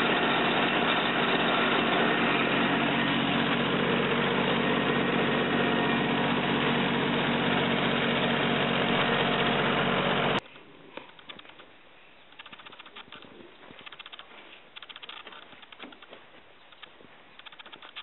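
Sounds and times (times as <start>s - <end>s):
small tractor engine running: 0.0s - 10.4s, 14.8s - 18.0s
faint scattered clicks: 10.5s - 18.0s.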